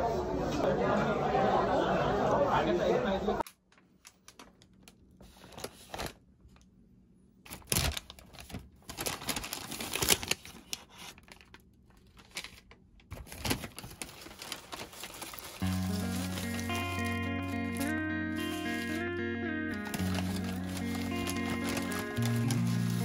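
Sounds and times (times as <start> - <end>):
paper bag and wrappers rustling: 3.4 - 6.7, 7.5 - 19.1, 19.7 - 23.0.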